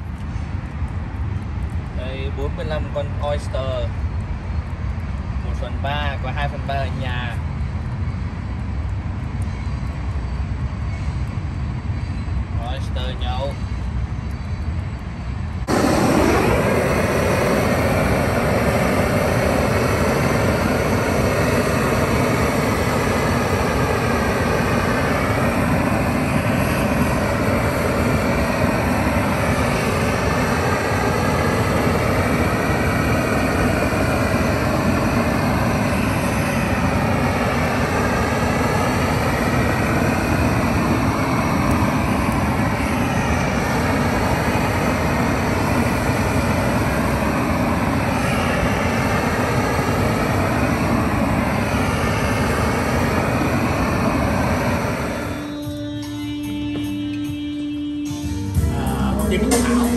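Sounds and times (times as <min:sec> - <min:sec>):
gas torch flame rushing: 0:15.6 - 0:55.8.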